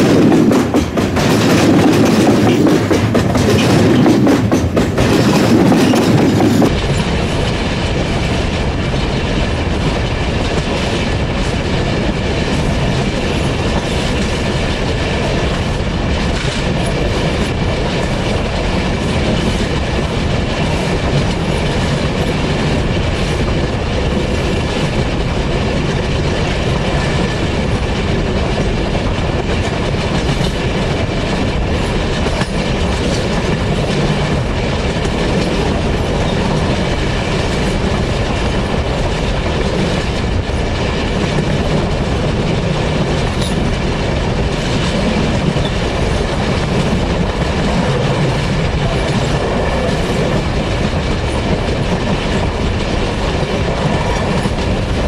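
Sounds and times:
steel train wheels rolling on rail: 0:00.0 - 0:55.0.

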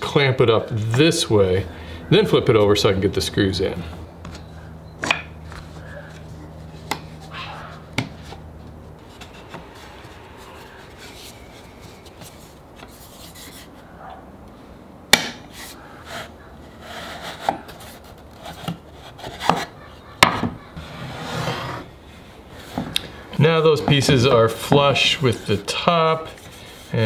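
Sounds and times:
wood sliding over bench: 0:20.8 - 0:23.1.

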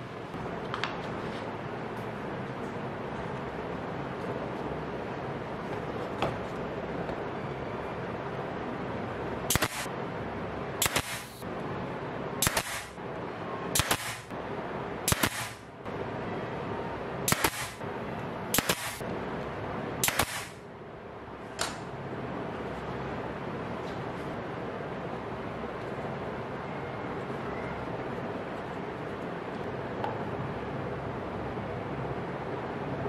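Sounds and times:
pneumatic nailer firing: 0:09.5 - 0:09.9, 0:10.8 - 0:11.4, 0:12.4 - 0:12.9, 0:13.8 - 0:14.3, 0:15.1 - 0:15.6, 0:17.3 - 0:17.8, 0:18.5 - 0:19.0, 0:20.0 - 0:20.6.

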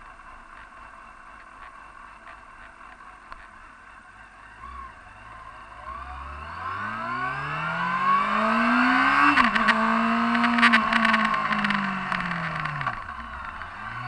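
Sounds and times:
motorcycle engine revving: 0:00.0 - 0:14.0
crackling clicks: 0:09.3 - 0:13.8.

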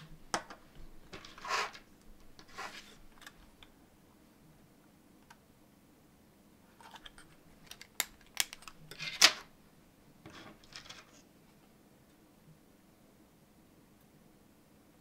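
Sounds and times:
plastic parts clicking and rattling: 0:06.8 - 0:09.4
sharp plastic snaps: 0:07.6 - 0:08.8.

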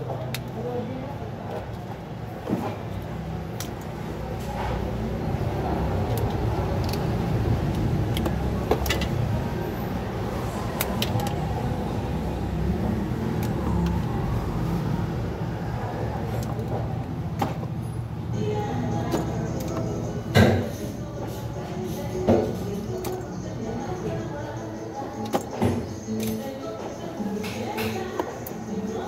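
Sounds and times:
pliers clicking on wires: 0:03.5 - 0:04.0, 0:05.9 - 0:09.2, 0:10.6 - 0:11.6.

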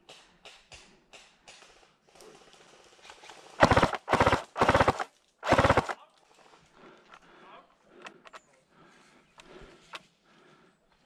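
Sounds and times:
airsoft rifle full-auto bursts: 0:03.6 - 0:06.0.

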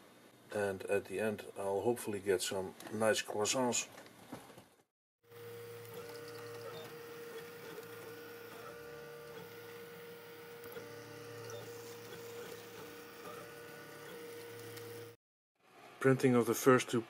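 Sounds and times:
stepper motors whining: 0:05.3 - 0:15.2.

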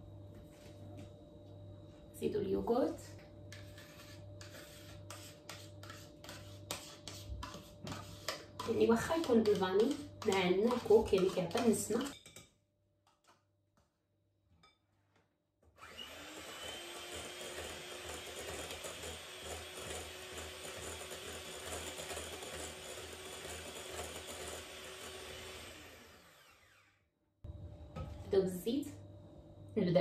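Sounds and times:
electric hand mixer whining: 0:15.8 - 0:26.9.

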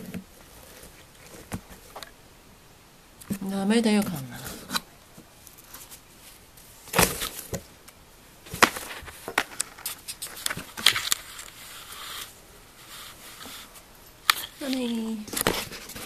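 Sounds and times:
scratchy rustling: 0:08.5 - 0:16.0.

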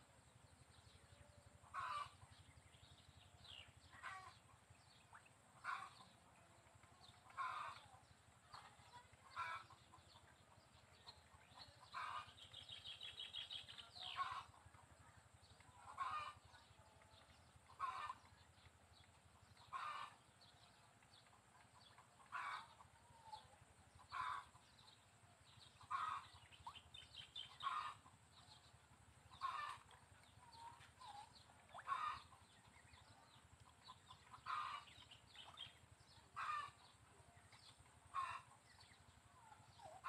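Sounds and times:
bird calling: 0:29.3 - 0:33.1.

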